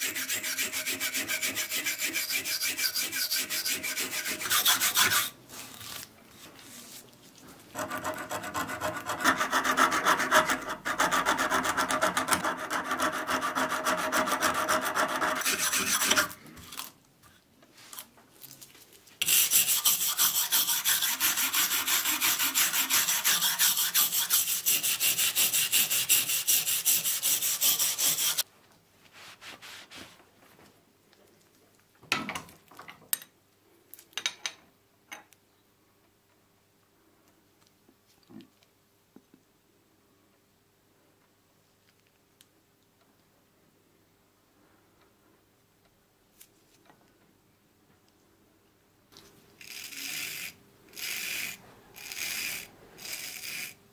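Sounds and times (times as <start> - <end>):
wire brush scrubbing metal: 19.2 - 28.4.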